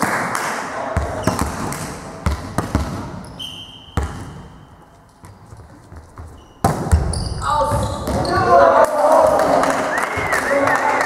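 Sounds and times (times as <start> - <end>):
sports hall noise: 0.0 - 11.0
volleyball bouncing on floor: 1.0 - 3.3, 3.9 - 4.6, 5.2 - 8.5
referee whistle: 3.3 - 4.0.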